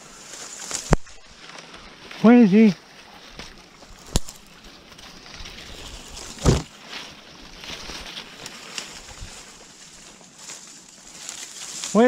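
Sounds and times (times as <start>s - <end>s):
dry reeds rustling and crackling: 0.0s - 12.0s
heavy thud: 6.4s - 6.7s.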